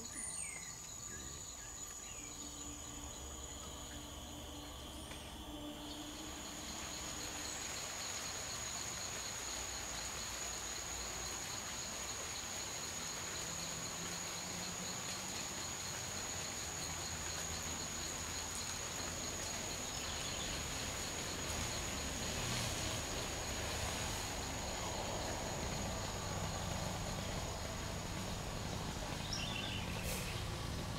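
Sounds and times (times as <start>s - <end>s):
fast pulsing insect trill: 0.0s - 30.9s
high insect whine: 0.0s - 30.9s.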